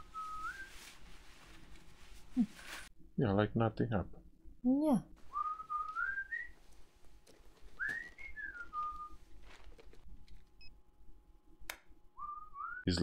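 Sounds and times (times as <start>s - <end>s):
man whistling a slow tune: 0.0s - 0.8s, 5.3s - 6.6s, 7.8s - 9.2s, 12.2s - 12.9s.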